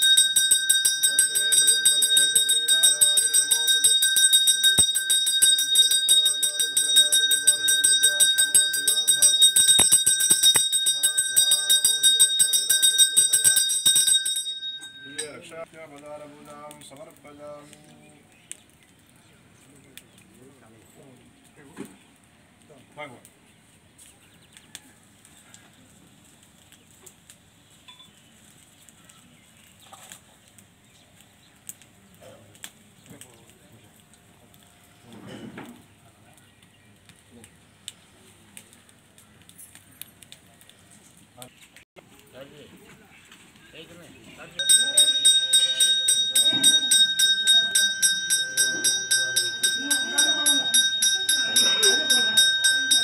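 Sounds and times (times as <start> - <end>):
hand bell rung rapidly: 0.0 - 15.4, 44.6 - 53.0
fire crackling: 0.0 - 53.0.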